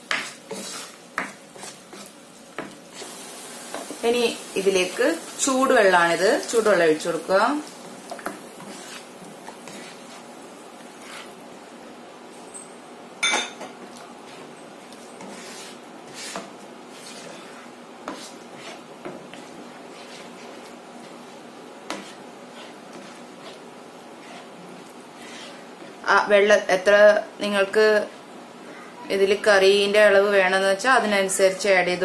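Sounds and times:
spatula scraping frying pan: 0.0s - 11.4s, 14.2s - 26.0s.

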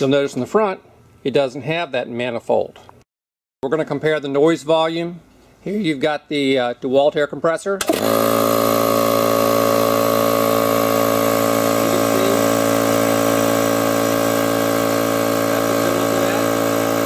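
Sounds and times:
air compressor humming: 7.8s - 17.0s.

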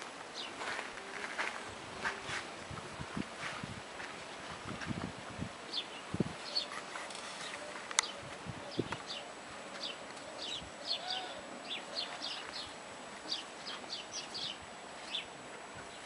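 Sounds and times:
steady outdoor background: 0.0s - 16.0s
birds chirping: 0.3s - 0.8s, 5.7s - 16.0s.

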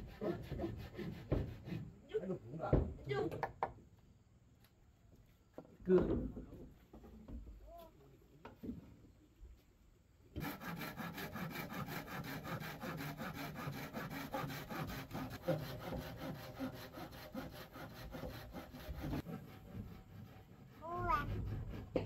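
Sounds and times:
hand saw cutting wood: 0.0s - 2.0s, 10.4s - 22.0s.

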